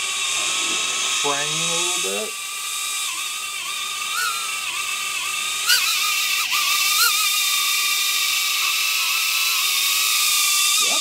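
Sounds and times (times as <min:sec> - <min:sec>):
micro drone motors whining: 0:00.0 - 0:11.0.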